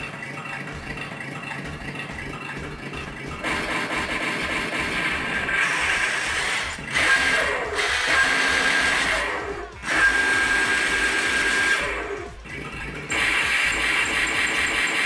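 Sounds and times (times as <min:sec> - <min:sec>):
toy car electric motors whining: 0:05.3 - 0:14.2.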